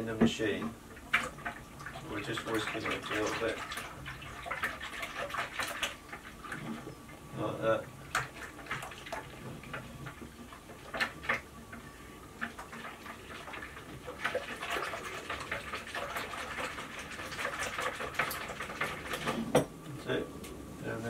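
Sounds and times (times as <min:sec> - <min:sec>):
liquid swishing: 0:00.5 - 0:19.5.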